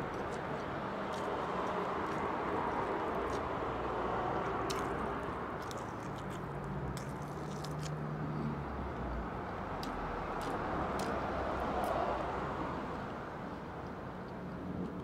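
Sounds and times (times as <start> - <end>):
person chewing food: 0.0 - 8.0, 9.8 - 11.2
outdoor background noise: 0.0 - 15.0
wet mouth clicks: 4.4 - 8.0.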